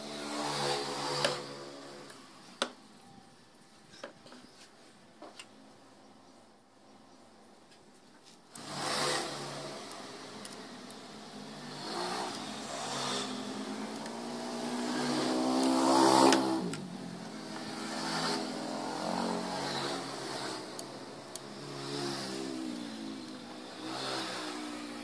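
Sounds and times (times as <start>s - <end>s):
vehicle engines passing by: 8.6s - 25.0s.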